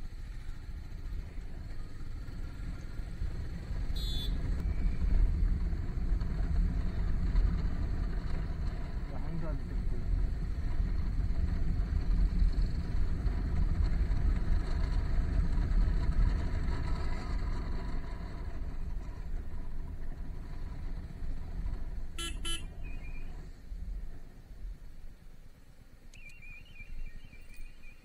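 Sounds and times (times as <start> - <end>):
motorcycle engine: 0.0 - 23.9
vehicle horn toots: 4.0 - 4.4, 22.2 - 22.8.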